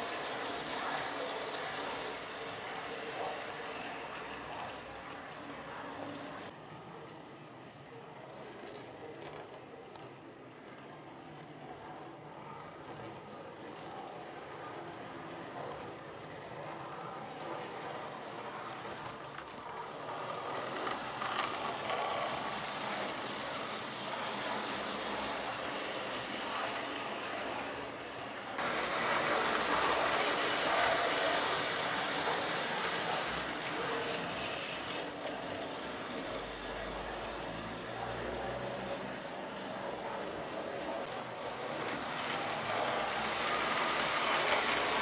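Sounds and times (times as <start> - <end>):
model train motor whirring: 0.0 - 6.5, 8.2 - 45.0
model train wheels rattling: 0.0 - 45.0.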